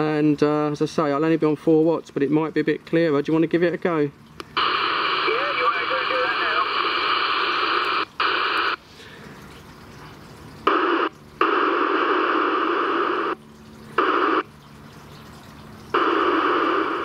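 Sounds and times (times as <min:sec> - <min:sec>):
radio static hiss: 0:04.6 - 0:08.8, 0:10.6 - 0:13.4, 0:14.0 - 0:14.5, 0:15.9 - 0:17.0.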